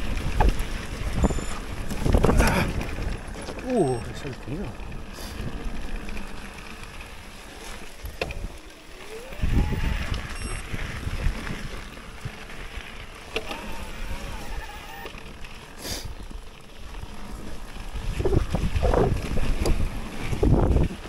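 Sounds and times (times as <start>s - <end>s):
wind rushing over microphone: 0.0s - 3.3s, 8.0s - 12.4s, 17.9s - 21.0s
bike tyres rumbling on rough ground: 0.0s - 21.0s.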